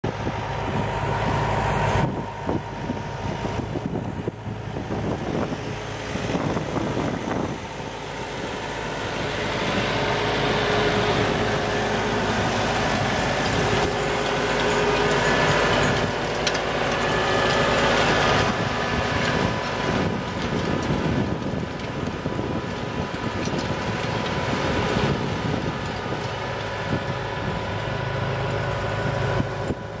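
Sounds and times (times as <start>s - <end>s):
tractor engine running: 0.0s - 30.0s.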